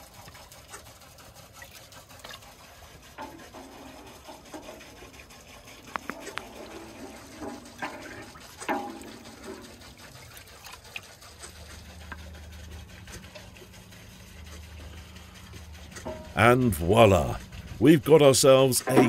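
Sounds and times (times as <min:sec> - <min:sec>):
wooden spoon stirring milk in pot: 0:00.0 - 0:19.0.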